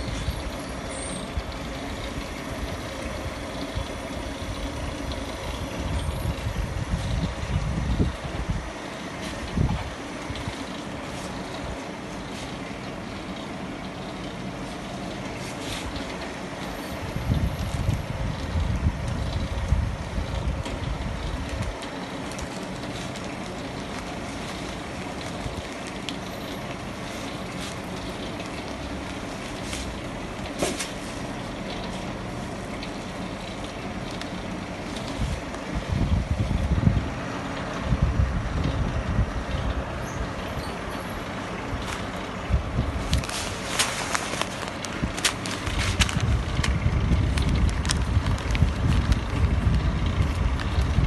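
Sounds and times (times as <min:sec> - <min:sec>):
sealing machine humming: 0:00.0 - 0:51.0
heavy low rumble: 0:35.0 - 0:51.0
plastic pouch rustling: 0:42.9 - 0:50.8.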